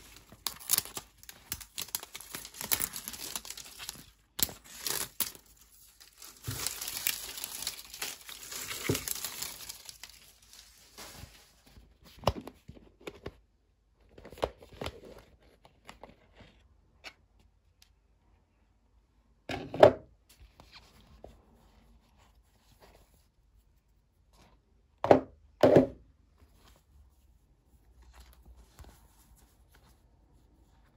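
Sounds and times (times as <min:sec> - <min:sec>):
plastic packaging crinkling and tearing: 0:00.0 - 0:11.9.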